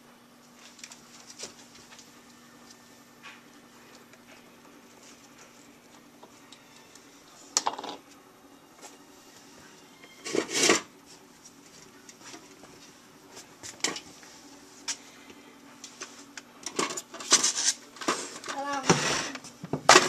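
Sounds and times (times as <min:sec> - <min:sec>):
rustling scrape: 0:17.1 - 0:19.4.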